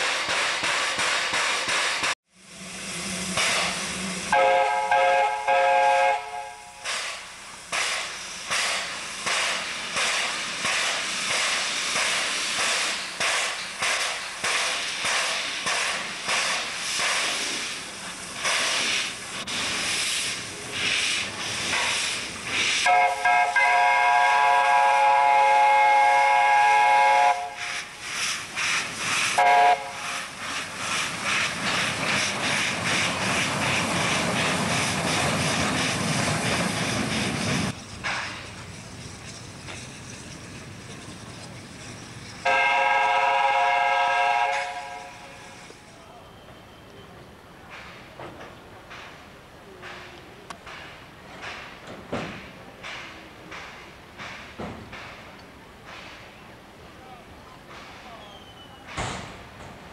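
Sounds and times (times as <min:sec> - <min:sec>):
hissing steam: 0:00.0 - 0:59.9
steam locomotive chuffing: 0:00.0 - 0:59.9
steam whistle: 0:04.1 - 0:06.8, 0:22.8 - 0:27.9, 0:29.3 - 0:30.3, 0:42.4 - 0:45.5.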